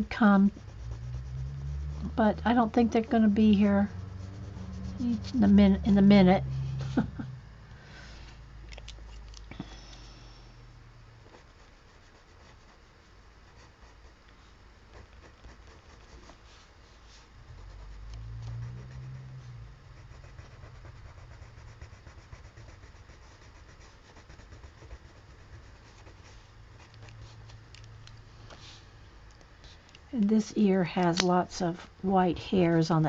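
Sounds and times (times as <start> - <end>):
pencil scratching on paper: 0.0 - 6.1, 11.2 - 14.2, 14.9 - 16.7, 17.5 - 27.4
steady low hum: 0.0 - 33.0
low rumble: 0.5 - 11.4.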